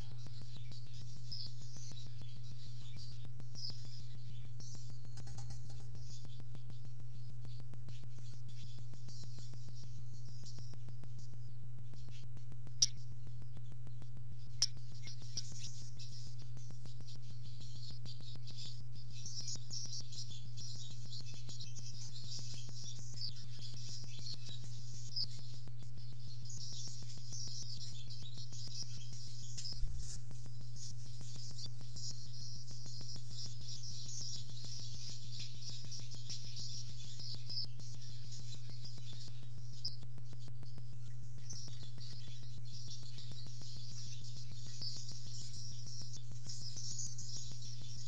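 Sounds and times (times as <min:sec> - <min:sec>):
faint regular ticking: 0:00.0 - 0:20.6
faint high bird chirping: 0:00.0 - 0:48.0
steady low hum: 0:00.0 - 0:48.0
swallow twittering: 0:00.0 - 0:48.0.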